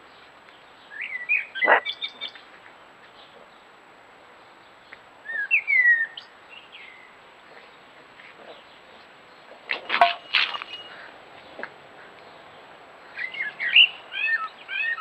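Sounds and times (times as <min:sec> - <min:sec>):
birds whistled chirps: 0:00.8 - 0:02.4, 0:05.3 - 0:07.2, 0:13.1 - 0:15.0.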